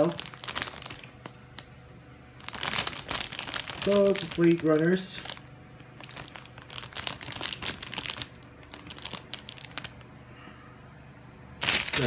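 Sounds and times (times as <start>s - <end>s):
plastic bags crinkling: 0.0s - 1.7s, 2.4s - 10.1s, 11.6s - 12.0s.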